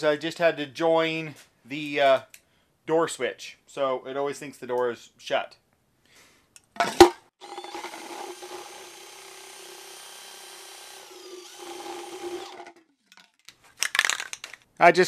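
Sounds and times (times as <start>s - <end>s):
cordless drill running: 7.4s - 13.0s.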